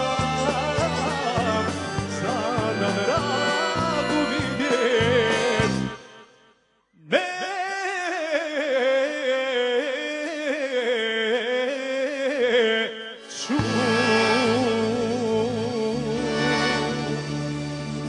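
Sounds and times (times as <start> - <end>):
band playing with bass: 0.0 - 6.0, 13.5 - 18.0
accordion melody: 0.0 - 6.5, 13.4 - 18.0.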